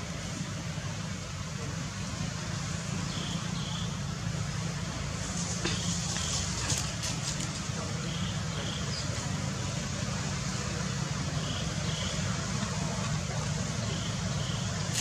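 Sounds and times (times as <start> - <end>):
outdoor rumble and hiss: 0.0 - 15.0.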